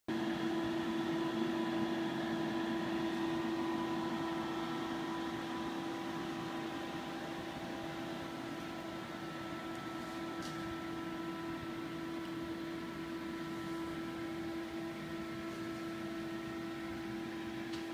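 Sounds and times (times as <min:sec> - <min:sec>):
electrical and fan hum: 0:00.1 - 0:17.9.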